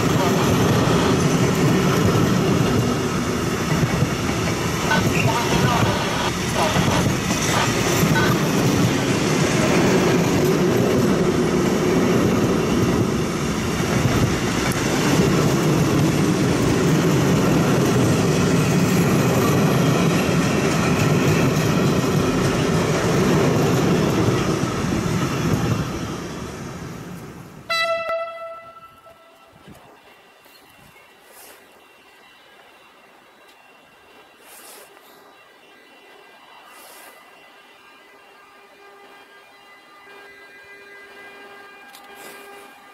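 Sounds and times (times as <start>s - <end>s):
freight train wheels rumbling on rail: 0.0s - 42.9s
rhythmic clatter over rail joints: 0.0s - 42.9s.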